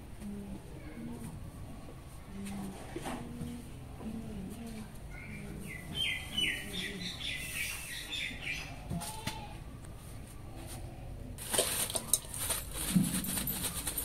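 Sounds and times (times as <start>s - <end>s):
small birds chirping: 5.1s - 8.9s.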